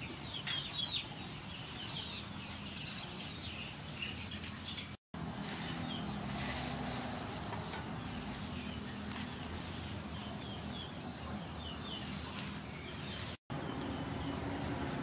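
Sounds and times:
birds chirping: 0.0 - 15.0
leaves rustling: 5.2 - 15.0.

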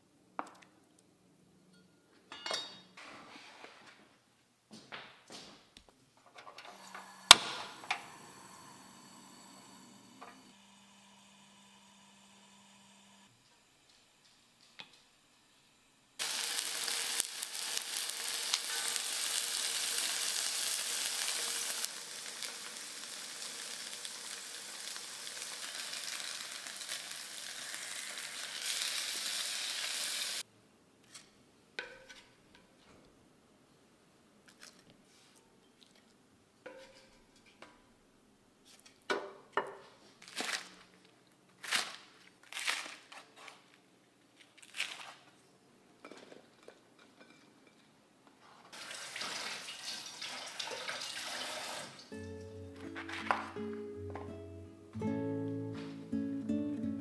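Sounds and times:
tofu sizzling in hot oil: 16.2 - 30.4, 48.8 - 52.1.

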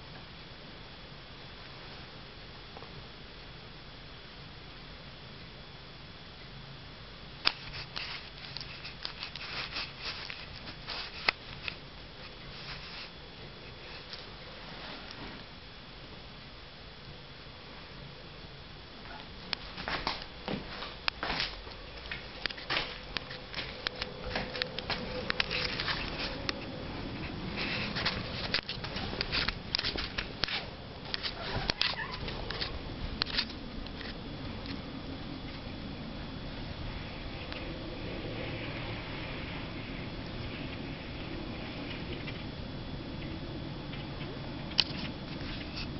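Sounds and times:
rustling paper and plastic: 7.5 - 13.2, 19.6 - 34.2
short rustles: 7.5 - 15.5.

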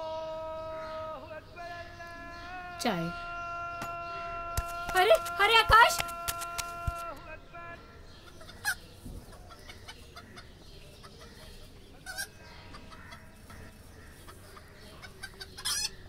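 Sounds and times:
chicken clucking: 8.2 - 16.0.

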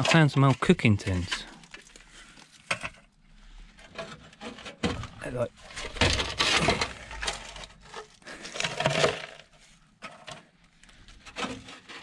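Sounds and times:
objects clinking and knocking in debris: 5.7 - 10.3.

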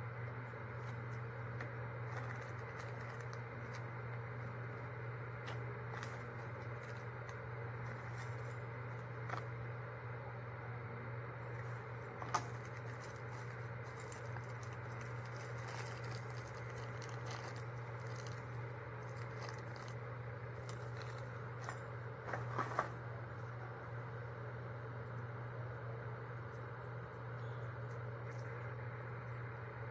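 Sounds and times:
steady low hum: 0.0 - 29.9
plastic packaging crinkling: 0.6 - 9.6, 11.4 - 23.5.

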